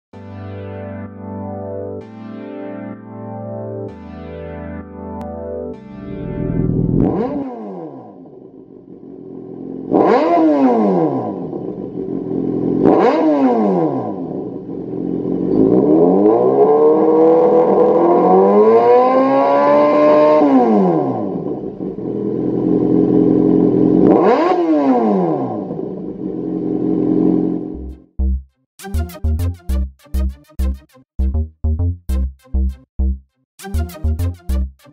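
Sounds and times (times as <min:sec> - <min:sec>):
motorcycle engine idling and revving: 0:06.1 - 0:28.3.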